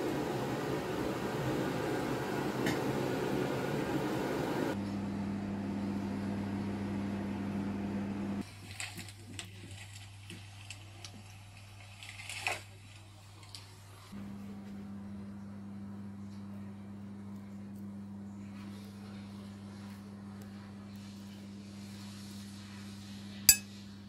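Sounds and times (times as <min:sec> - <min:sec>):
low electrical hum: 0:00.0 - 0:24.0
pancake frying: 0:08.4 - 0:13.0.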